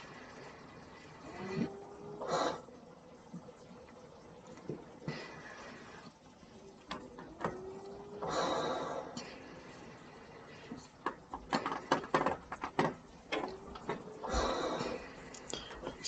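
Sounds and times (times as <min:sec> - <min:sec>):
sharp knocks and clicks: 0:11.0 - 0:14.0
person whispering: 0:15.4 - 0:16.0.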